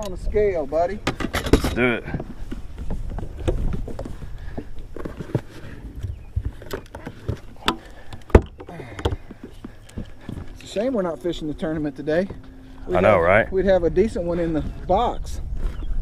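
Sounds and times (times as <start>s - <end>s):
gear clattering on boat deck: 0.9s - 12.6s.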